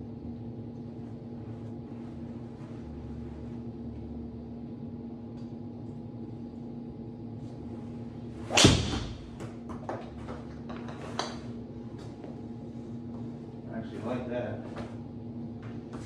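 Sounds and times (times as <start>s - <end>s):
golf club swish: 7.6s - 9.4s
golf club striking ball: 8.4s - 9.5s.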